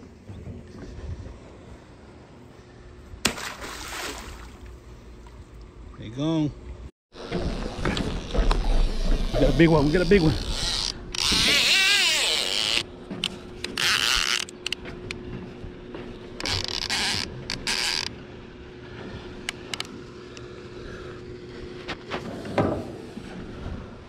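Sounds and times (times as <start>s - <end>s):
reel creaking and clicking: 7.2s - 15.2s, 16.4s - 18.1s.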